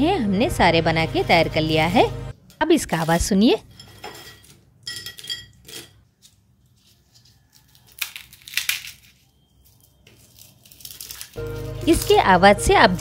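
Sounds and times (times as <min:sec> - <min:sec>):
crisp pastry cracking: 0:06.2 - 0:12.3.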